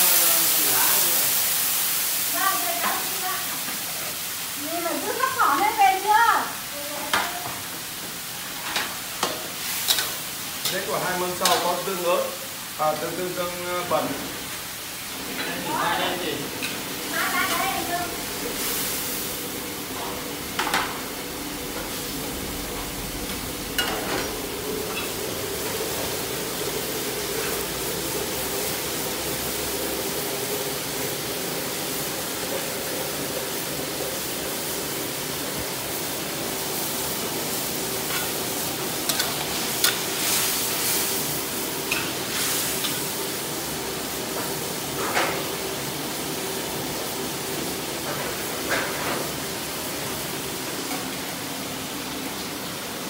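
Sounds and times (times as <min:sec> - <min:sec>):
gas burners hissing: 0:00.0 - 0:53.0.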